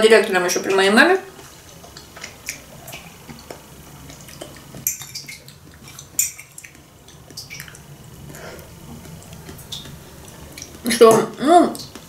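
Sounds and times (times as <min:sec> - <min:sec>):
chewing: 0:01.4 - 0:10.9.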